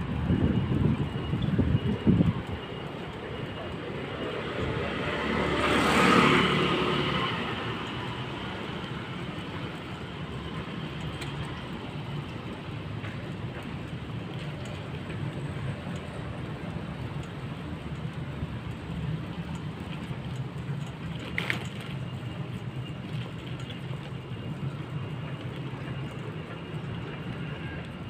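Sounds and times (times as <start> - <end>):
low rumble of road and wind: 0.0 - 28.0
vehicle passing close: 4.4 - 8.0.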